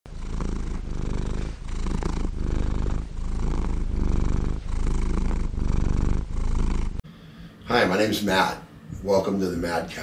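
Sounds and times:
cat purring: 0.1 - 7.0.

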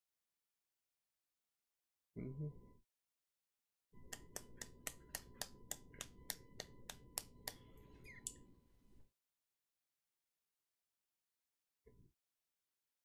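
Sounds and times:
person clapping: 4.1 - 7.6.

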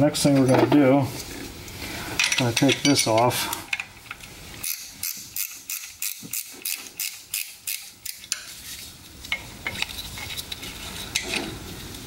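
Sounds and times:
ratchet wrench clicking: 4.6 - 8.4.

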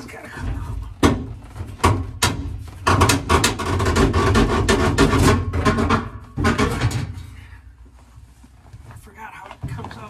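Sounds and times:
metal rattling and scraping: 0.0 - 7.5.

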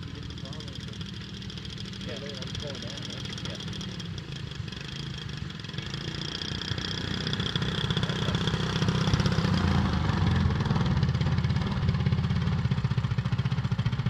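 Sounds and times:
model plane engine idling: 0.0 - 14.0.

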